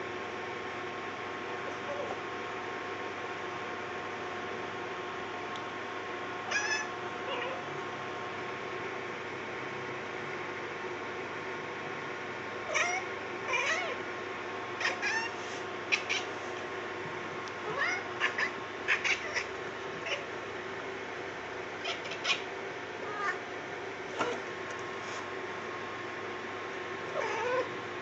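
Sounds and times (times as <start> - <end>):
cat chirping and chattering: 6.5 - 7.6, 12.7 - 14.0, 14.8 - 16.4, 17.6 - 20.3, 21.8 - 23.4, 27.2 - 27.7.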